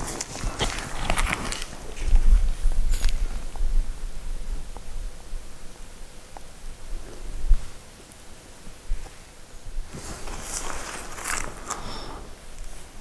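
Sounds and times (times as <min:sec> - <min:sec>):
footsteps crunching on snow: 0:00.0 - 0:03.6, 0:08.9 - 0:13.0.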